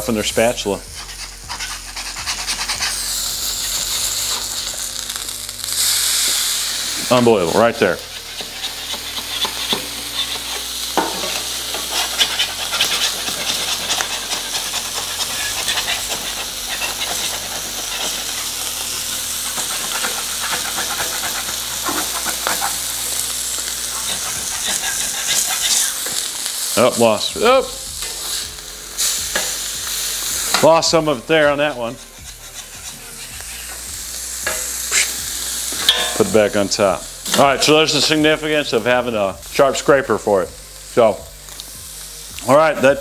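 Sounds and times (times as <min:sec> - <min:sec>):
burger patties sizzling on griddle: 0:00.0 - 0:43.0
metal spatula scraping steel: 0:00.6 - 0:05.3, 0:07.1 - 0:26.9, 0:30.4 - 0:38.2.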